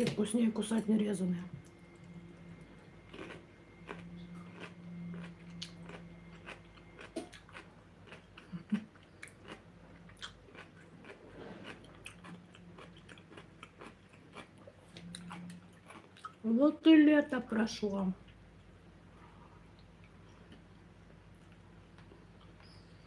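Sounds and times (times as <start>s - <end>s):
person chewing food: 1.6s - 16.4s.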